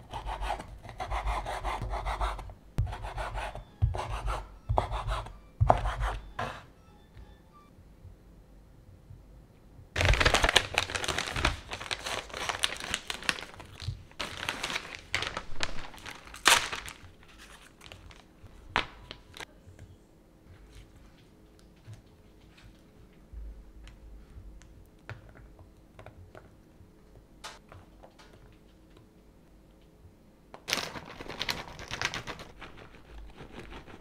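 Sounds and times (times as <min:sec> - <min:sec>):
plastic packaging crinkling: 0:10.0 - 0:19.4, 0:30.7 - 0:33.0.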